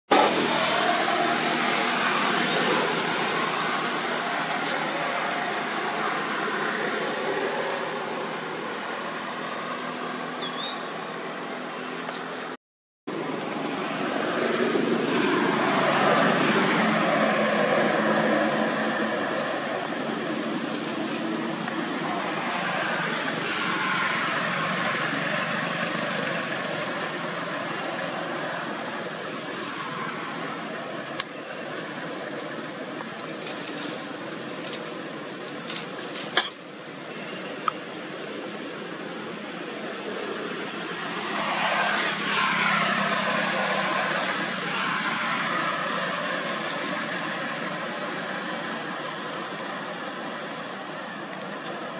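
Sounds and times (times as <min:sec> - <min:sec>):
road traffic hum: 0:00.0 - 0:51.9.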